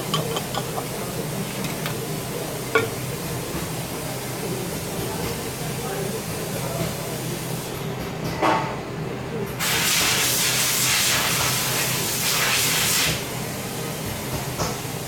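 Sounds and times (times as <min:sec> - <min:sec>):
metallic clank: 0:00.0 - 0:00.9, 0:02.8 - 0:03.1.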